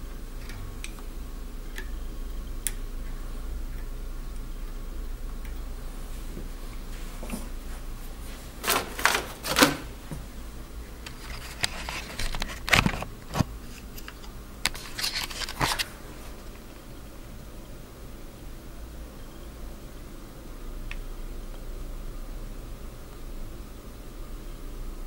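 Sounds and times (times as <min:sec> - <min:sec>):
low steady hum: 0:00.0 - 0:25.0
handling clicks and scrapes: 0:11.0 - 0:16.0.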